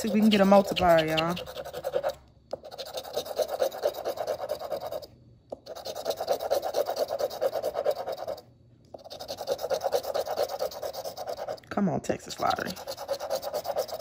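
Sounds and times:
coin scraping lottery ticket: 0.0 - 2.1, 12.5 - 14.0.

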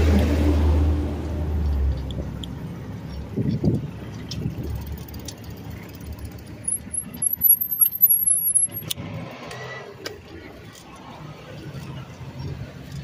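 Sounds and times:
street traffic: 0.0 - 13.0
bicycle riding on concrete: 1.3 - 13.0
high wavering squeal: 6.6 - 8.9.

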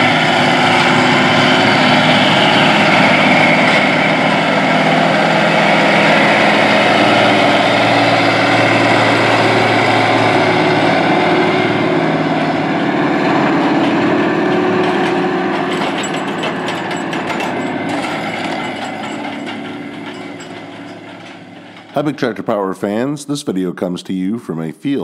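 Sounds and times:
planter clicking and rattling: 0.0 - 22.2
tractor diesel engine running: 0.0 - 22.5.

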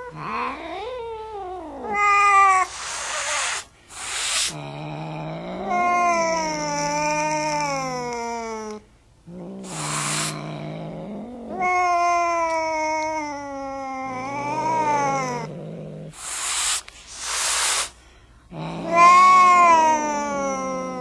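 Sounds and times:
cat yowling: 0.0 - 3.6, 5.6 - 8.8, 11.4 - 15.5, 18.7 - 21.0
cat growling: 0.0 - 21.0
cat hissing: 0.0 - 21.0.

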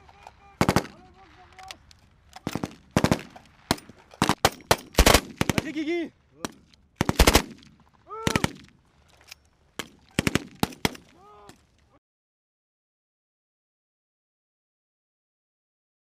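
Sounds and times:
machine gun automatic bursts: 0.6 - 1.0, 2.4 - 3.4, 4.2 - 5.9, 7.0 - 7.7, 10.1 - 11.0
person shouting: 8.1 - 8.5, 11.1 - 11.6.

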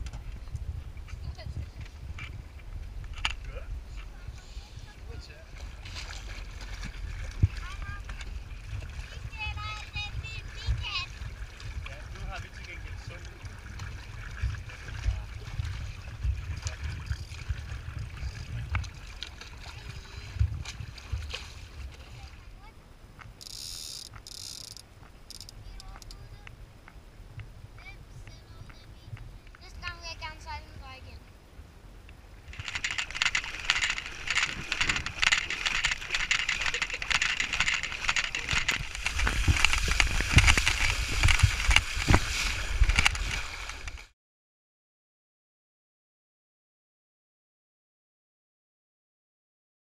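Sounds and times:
wind gusting over microphone: 0.0 - 22.3, 25.6 - 44.0
water lapping along a hull: 0.0 - 44.1
short splashes: 5.4 - 22.7, 32.4 - 44.1.

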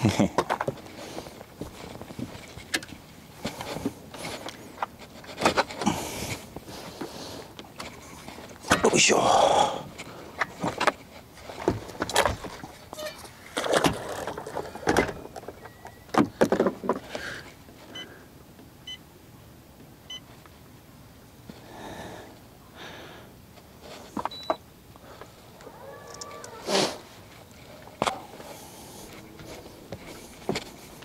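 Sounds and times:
fishing gear knocking and rustling: 0.0 - 8.8, 9.9 - 17.6
short faint beeps: 24.3 - 24.6.

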